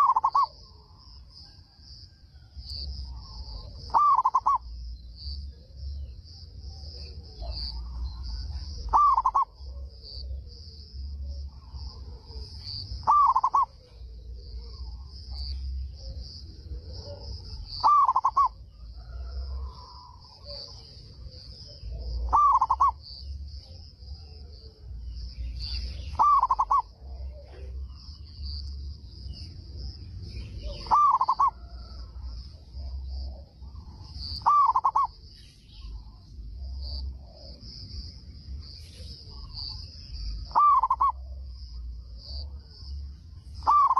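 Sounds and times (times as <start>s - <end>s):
dove cooing: 0.0s - 0.6s, 3.1s - 4.8s, 5.5s - 23.0s, 25.6s - 28.2s, 30.6s - 37.9s, 39.0s - 41.5s, 43.6s - 43.9s.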